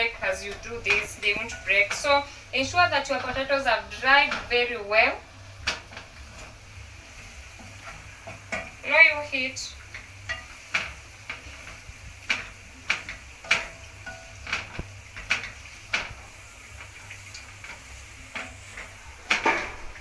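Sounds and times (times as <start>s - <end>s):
faint sizzling: 0.0s - 20.0s
spoon clicking on frying pan: 7.6s - 8.8s, 9.9s - 16.2s.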